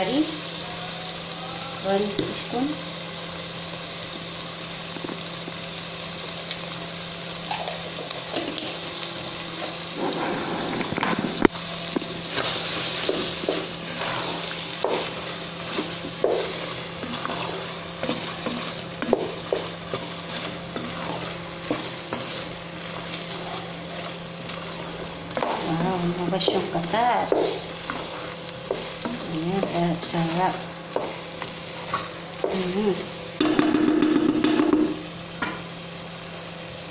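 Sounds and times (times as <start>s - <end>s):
faint sizzle: 0.0s - 36.9s
steady low hum: 8.0s - 35.4s
spatula scraping a metal pot: 12.4s - 15.0s, 15.6s - 26.6s.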